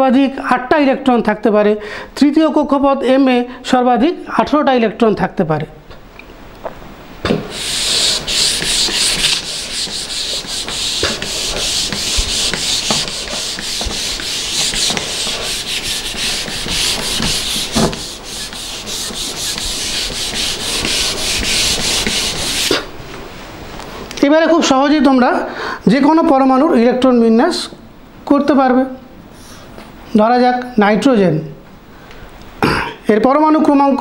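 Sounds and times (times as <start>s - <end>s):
duster knocking on whiteboard: 7.2s - 22.8s
duster rubbing whiteboard: 7.3s - 22.9s.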